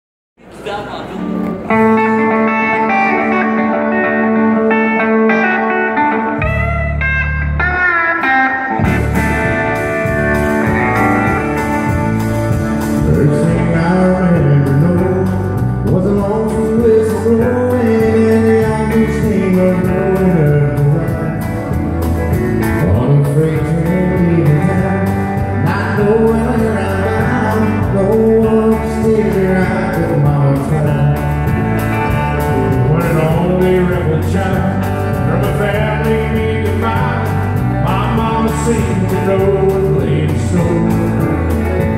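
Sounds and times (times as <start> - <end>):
live country band playing: 0.4 - 41.9
man singing: 12.8 - 21.8, 22.6 - 31.6, 32.4 - 41.9.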